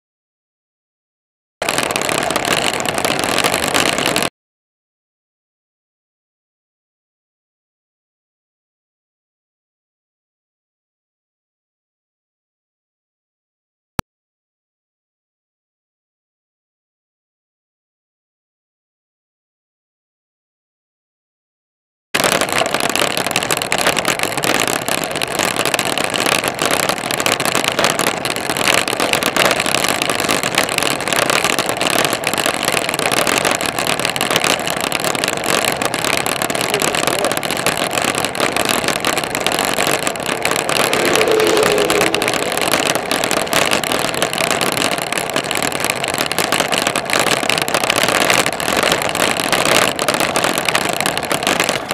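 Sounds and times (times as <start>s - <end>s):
road noise: 35.7s - 50.4s
wind rushing: 40.2s - 44.3s.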